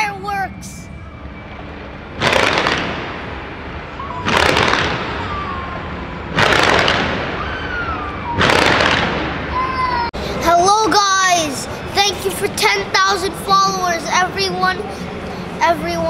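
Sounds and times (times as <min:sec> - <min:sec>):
fireworks crackling: 0:01.5 - 0:05.5, 0:06.2 - 0:07.5, 0:08.3 - 0:09.6
fireworks bangs: 0:01.5 - 0:10.0.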